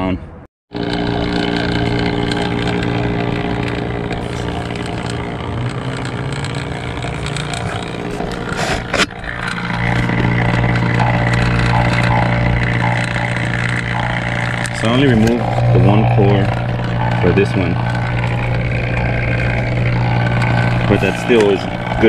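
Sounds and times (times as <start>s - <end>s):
vacuum pump humming: 0.7s - 22.0s.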